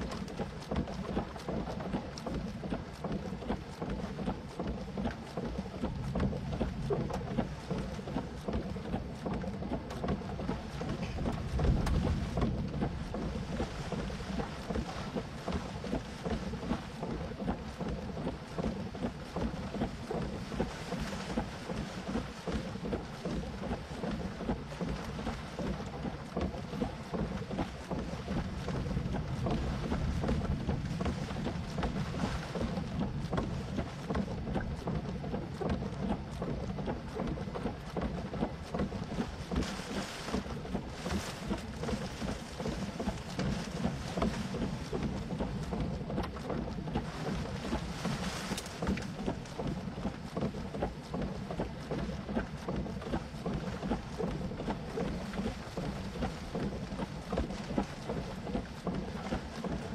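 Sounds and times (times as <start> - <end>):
wind buffeting microphone: 10.4 - 17.6, 27.5 - 35.0.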